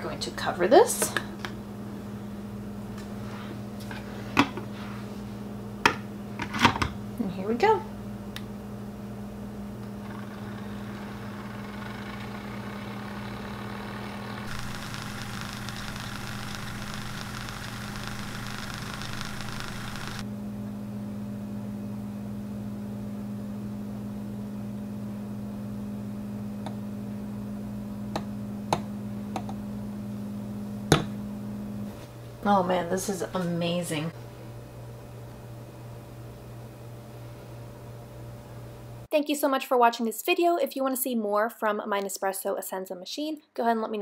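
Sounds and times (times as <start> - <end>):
milk frother humming: 9.8 - 20.2
bright hiss: 14.4 - 20.2.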